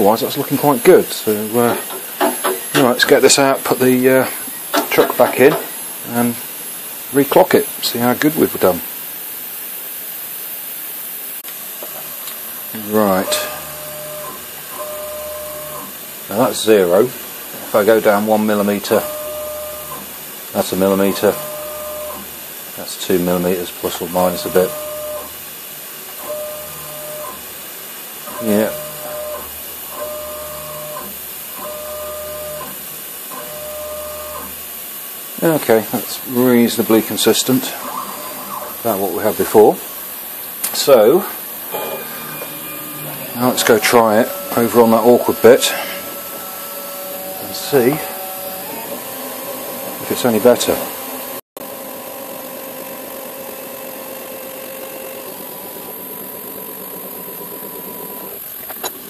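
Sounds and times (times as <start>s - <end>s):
motor whine: 9.6s - 22.4s, 24.0s - 25.5s, 26.2s - 27.6s, 28.2s - 58.8s.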